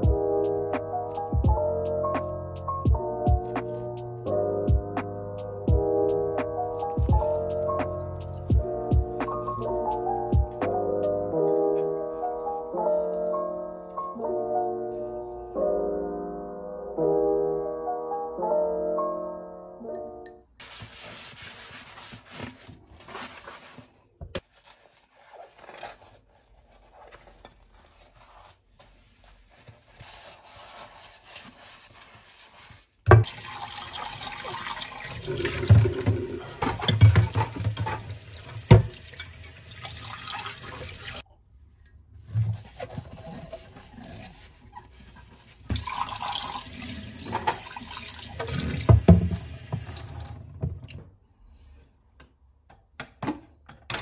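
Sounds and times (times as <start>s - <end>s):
sponge scrubbing glass dish: 26.9s - 32.8s
tap water running: 33.1s - 41.2s, 45.7s - 51.0s.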